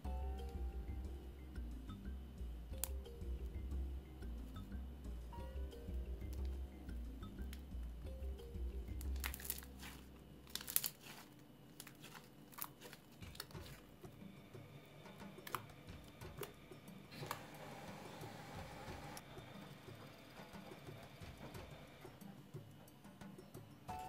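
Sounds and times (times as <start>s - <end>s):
slime crackling and popping: 9.0s - 13.8s.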